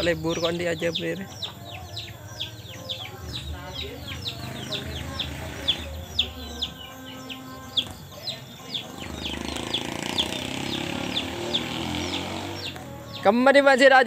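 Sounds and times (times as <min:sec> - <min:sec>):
chick peeping: 0:00.0 - 0:13.5.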